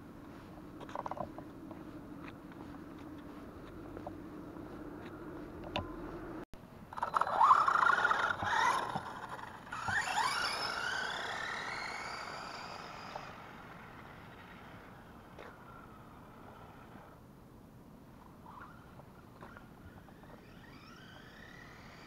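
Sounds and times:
rc truck motor whining: 6.9s - 17.2s, 18.4s - 22.0s.

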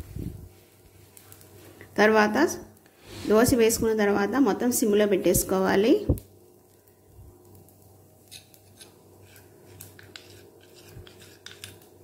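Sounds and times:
spoon stirring paste in glass bowl: 8.3s - 11.8s.

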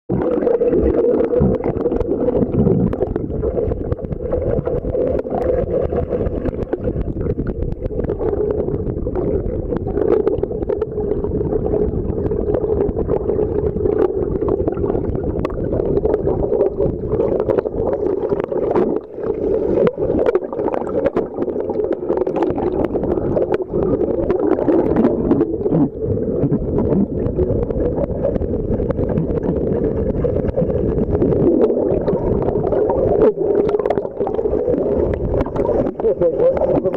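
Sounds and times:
underwater moving water rumble: 0.1s - 36.9s.

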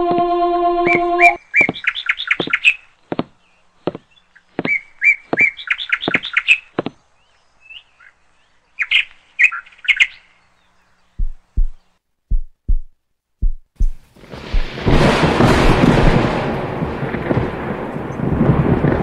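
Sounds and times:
bird chirping: 0.0s - 12.9s.

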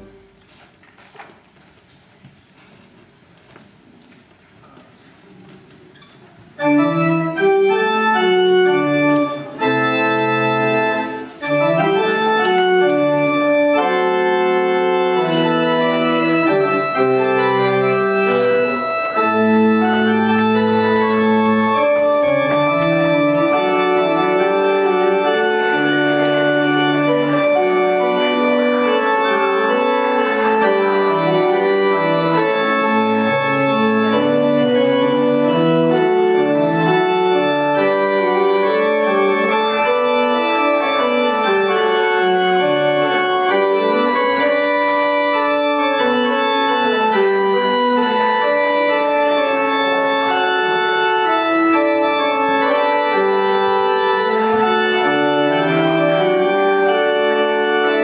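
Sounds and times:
church organ playing chords: 0.0s - 0.3s, 6.6s - 58.0s.

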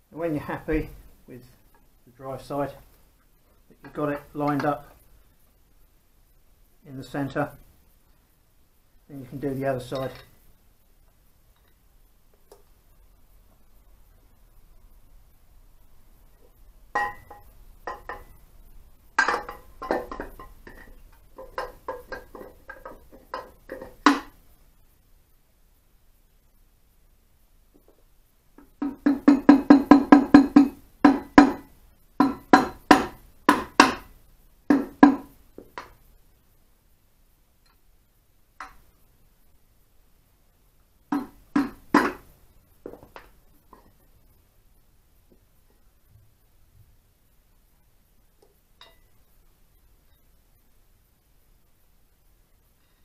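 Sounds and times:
metal engine parts clinking: 19.2s - 24.1s
mallet knocking on engine case: 28.8s - 34.1s, 34.7s - 35.4s, 41.1s - 42.2s.

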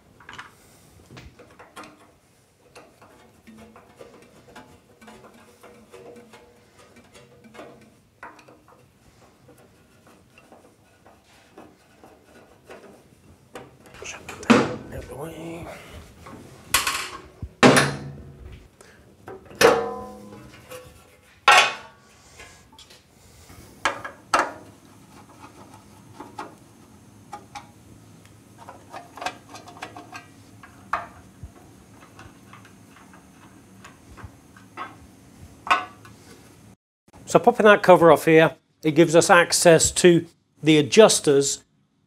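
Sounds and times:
metal clanks and knocks: 1.2s - 15.2s, 16.2s - 18.6s, 19.2s - 22.0s
metal clang with ring: 19.6s - 20.5s.

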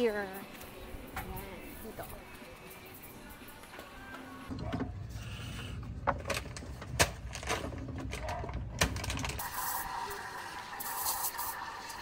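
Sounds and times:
steam wand hissing: 9.4s - 12.0s.

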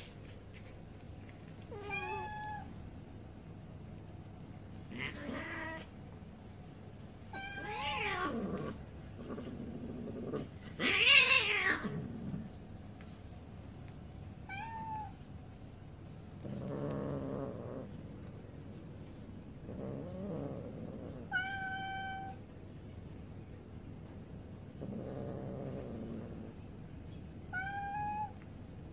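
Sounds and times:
cats meowing: 1.6s - 2.8s, 4.8s - 6.0s, 7.3s - 8.9s, 10.6s - 12.1s, 14.4s - 15.3s, 19.8s - 22.4s, 27.5s - 28.4s.

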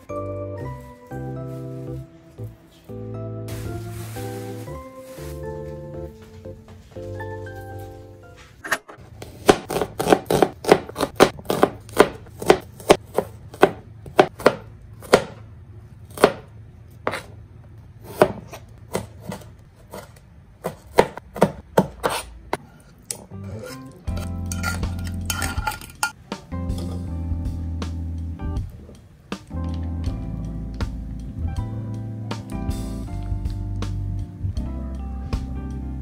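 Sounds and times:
knife chopping onion on cutting board: 9.2s - 15.4s, 16.1s - 17.3s, 18.0s - 22.6s.

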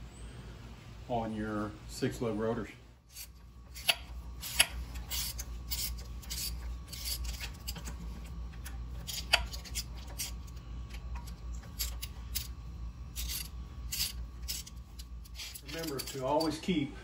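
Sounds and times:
rustling and scraping: 3.1s - 12.5s, 13.2s - 16.7s.

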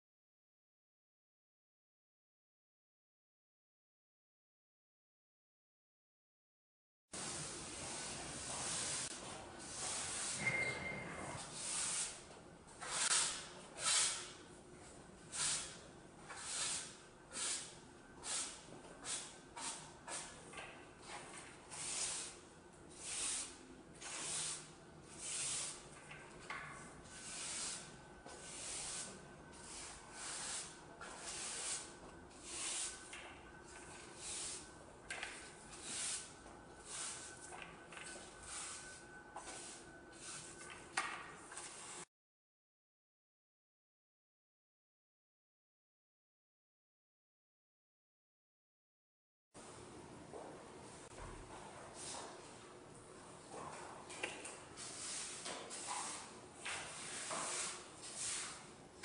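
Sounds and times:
broom swishing across floor: 7.2s - 10.6s, 23.0s - 25.8s, 27.1s - 33.1s, 33.8s - 34.7s, 35.3s - 40.8s, 41.4s - 42.1s, 51.9s - 52.5s, 54.8s - 58.7s.

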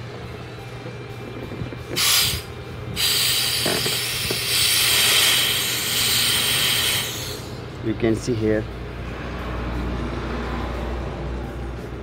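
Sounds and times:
aerosol gas hissing: 1.9s - 7.6s.

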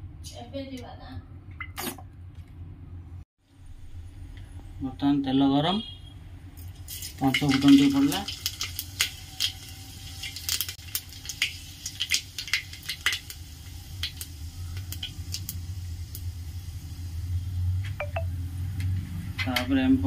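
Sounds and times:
seeds popping in hot oil: 6.6s - 16.9s.

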